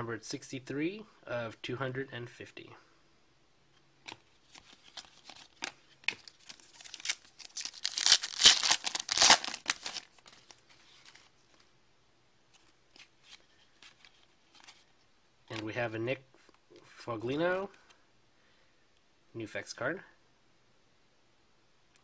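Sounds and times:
rustling and crinkling: 4.0 - 11.7, 12.5 - 15.1
trading cards handled: 4.0 - 11.7, 12.5 - 15.0.

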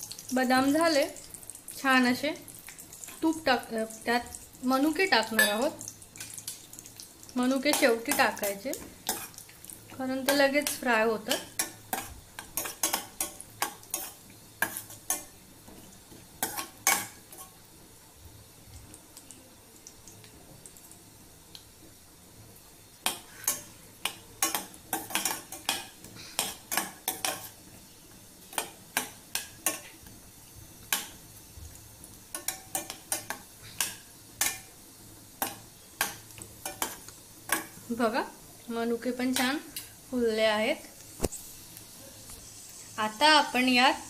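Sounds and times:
faint sizzle of hot fat: 0.0 - 44.0
metal spoon scraping a pan: 7.6 - 9.4, 10.2 - 15.3, 16.4 - 17.6, 23.0 - 27.6.

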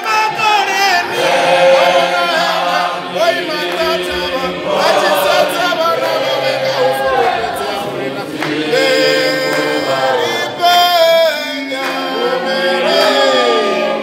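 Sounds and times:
group singing unaccompanied: 0.0 - 14.0
man singing into microphone: 2.2 - 12.4.

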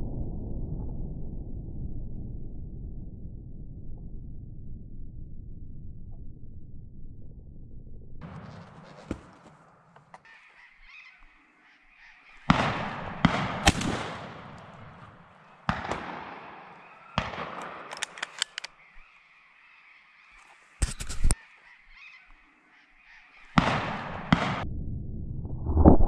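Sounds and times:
sharp cracks: 8.2 - 10.4, 12.4 - 19.2, 23.6 - 24.6
shotgun blasts: 12.5 - 18.9, 23.6 - 24.6
quick sharp clicks: 13.6 - 18.8, 20.8 - 21.4.

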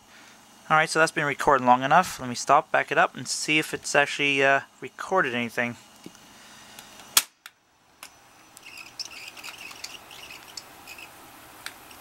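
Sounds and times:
tape reels whirring in rewind: 8.3 - 12.0.

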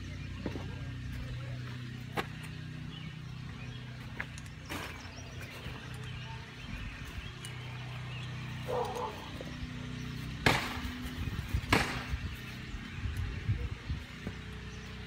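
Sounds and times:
steady low hum: 0.0 - 15.0
loud sharp knocks: 10.4 - 10.8, 11.6 - 12.1.

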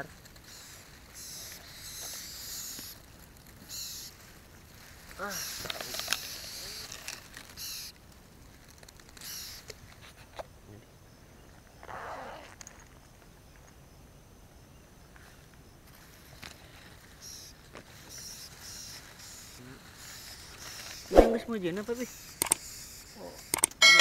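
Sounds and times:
tall grass rustling: 0.0 - 10.5, 15.1 - 24.0
faint handling clicks: 22.4 - 22.6.

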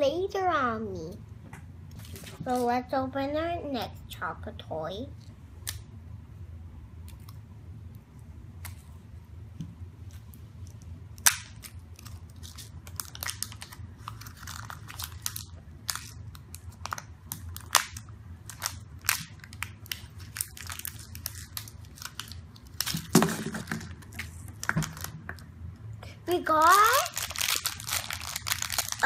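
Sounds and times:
plastic clatter: 22.9 - 25.4
plastic capsule clicking and crinkling: 27.1 - 29.0.

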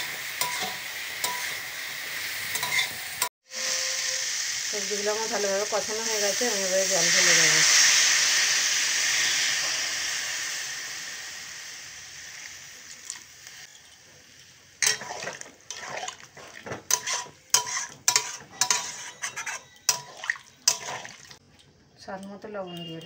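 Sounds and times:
metal spatula scraping pan: 0.0 - 1.6, 2.5 - 4.0, 14.8 - 21.4
water hissing in hot pan: 0.0 - 21.4.

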